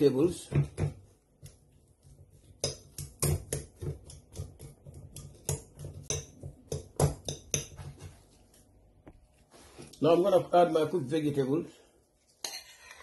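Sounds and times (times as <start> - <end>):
metal utensil knocking a bowl: 5.4 - 7.9.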